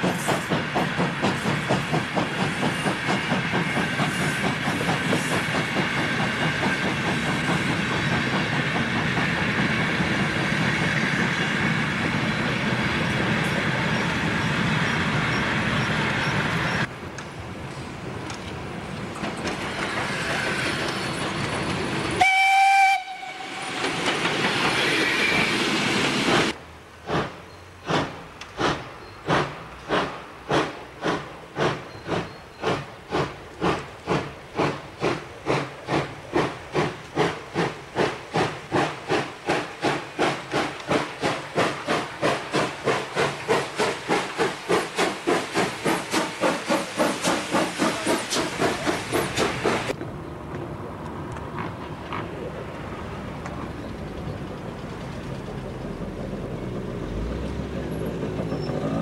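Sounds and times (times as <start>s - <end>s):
steam hissing: 0.0s - 16.9s, 19.4s - 50.0s
steam locomotive exhaust chuffing: 0.0s - 16.9s, 19.5s - 50.0s
steam locomotive whistle blast: 22.2s - 23.9s.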